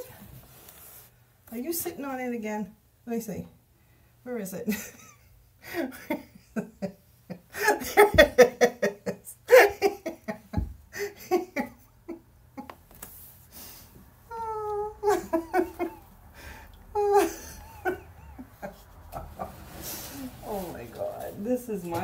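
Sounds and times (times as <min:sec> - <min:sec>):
woman laughing: 0:04.7 - 0:12.7, 0:14.3 - 0:16.2, 0:16.9 - 0:20.7.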